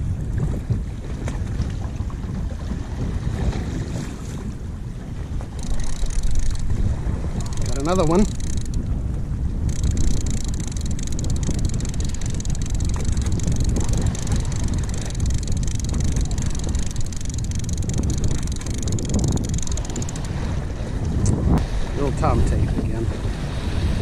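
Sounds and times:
wind buffeting microphone: 0.0s - 24.0s
fishing reel whirring: 5.5s - 9.0s, 9.6s - 20.6s.

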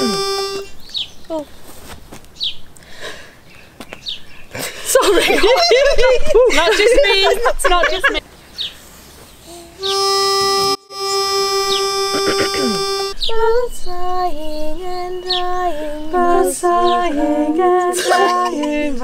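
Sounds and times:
pitch pipe note: 0.0s - 0.7s, 9.8s - 13.2s
women singing a cappella harmony: 13.2s - 19.0s.

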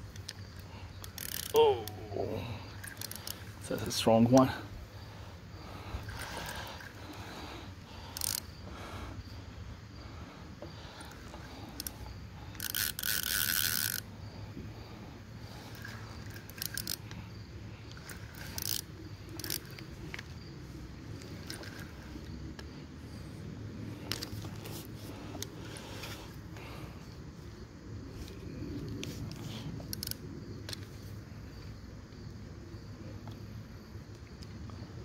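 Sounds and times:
fishing reel clicking: 0.1s - 4.4s, 6.0s - 7.2s, 8.0s - 8.5s, 11.1s - 14.1s, 15.5s - 17.2s, 17.9s - 20.3s, 21.2s - 22.0s, 24.1s - 24.4s, 29.8s - 30.8s.

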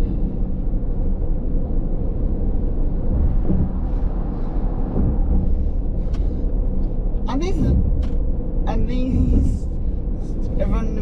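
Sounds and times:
road and engine noise in car: 0.0s - 11.0s.

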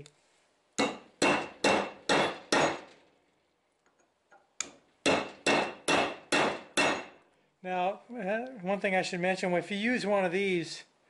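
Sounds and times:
hammer clanking on steel: 0.8s - 3.0s, 5.0s - 7.2s.

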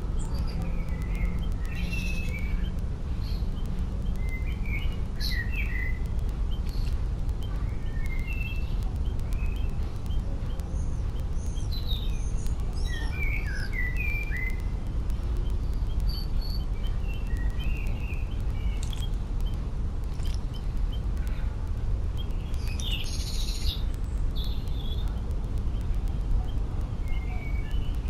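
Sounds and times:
songbirds singing and chirping: 0.0s - 28.0s
steady low rumble: 0.0s - 28.0s.

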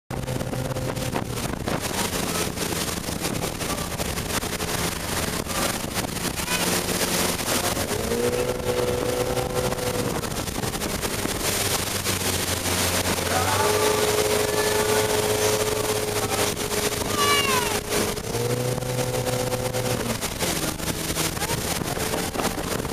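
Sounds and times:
boat wake rushing: 0.1s - 22.9s
motorboat engine running: 0.1s - 22.9s
wind buffeting microphone: 0.1s - 22.9s.

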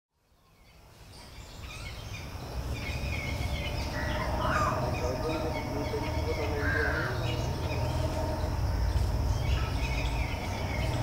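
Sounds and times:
birds chirping and calling: 0.4s - 11.0s.

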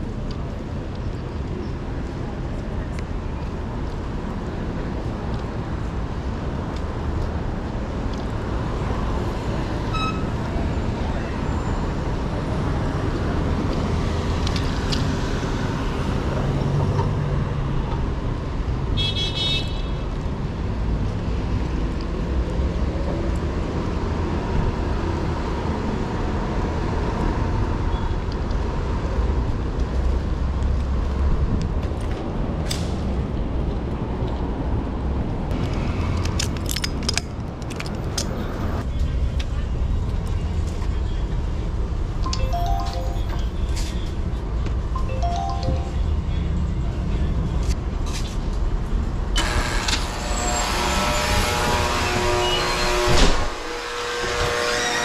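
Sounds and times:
city street traffic: 0.0s - 55.0s
high-pitched tone: 42.3s - 43.9s, 45.0s - 46.4s.

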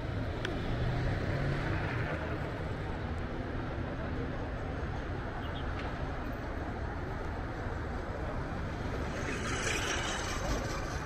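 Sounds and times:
street traffic noise: 0.0s - 11.0s
vehicle passing with hiss: 8.7s - 11.0s.

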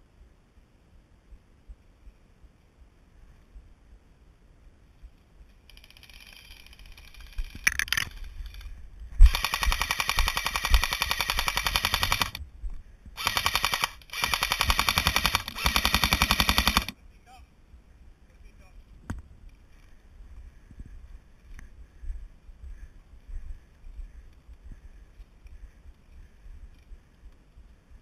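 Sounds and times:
airsoft rifle full-auto bursts: 5.7s - 8.6s, 9.2s - 12.4s, 13.2s - 17.0s
faint rapid fire: 9.2s - 12.4s, 13.2s - 17.0s.

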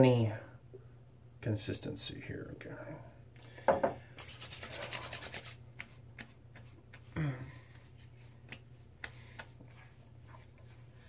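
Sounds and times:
palms rubbing together: 4.2s - 11.0s.

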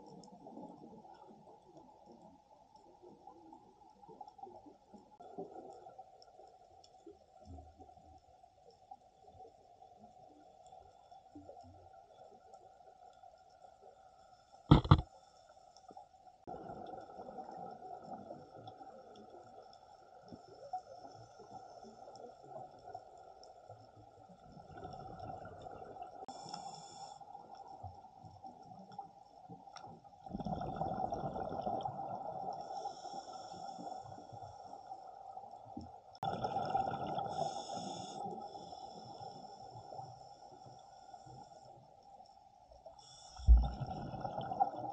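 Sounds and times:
exhaled bubbles underwater: 24.4s - 26.3s, 30.2s - 35.4s, 36.2s - 38.7s, 43.4s - 44.9s.

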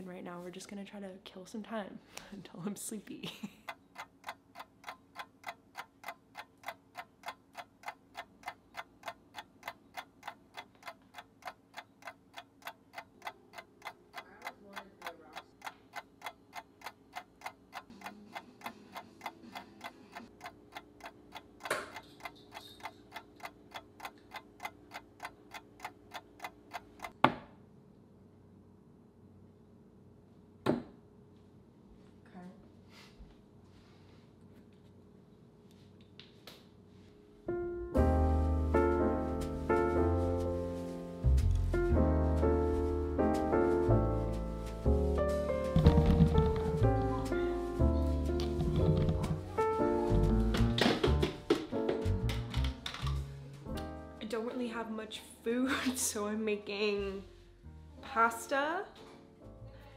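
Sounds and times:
clock ticking: 2.8s - 27.2s, 42.6s - 50.6s.

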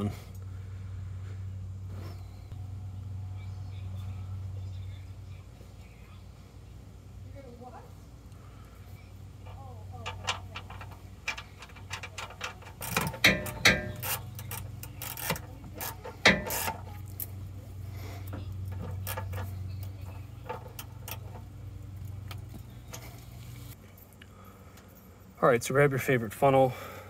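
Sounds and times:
steady low hum: 0.0s - 27.0s
socket ratchet clicking: 10.2s - 16.8s.

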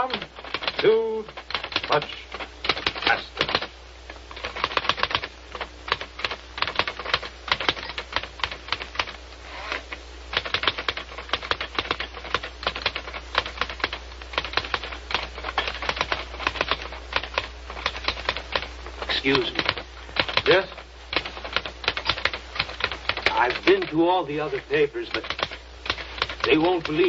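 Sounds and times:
typewriter key strikes: 0.0s - 3.7s, 25.1s - 27.0s.

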